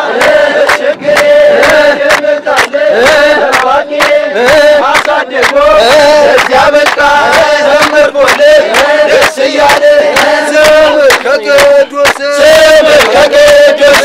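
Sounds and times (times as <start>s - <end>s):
crowd singing: 0.0s - 14.0s
hands clapping in unison: 0.0s - 14.0s.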